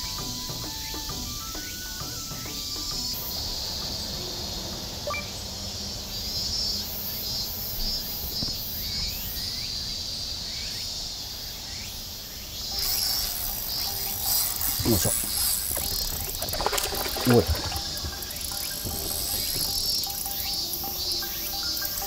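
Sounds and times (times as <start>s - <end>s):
bird chirps: 0.0s - 7.5s
insects shrilling: 0.0s - 22.0s.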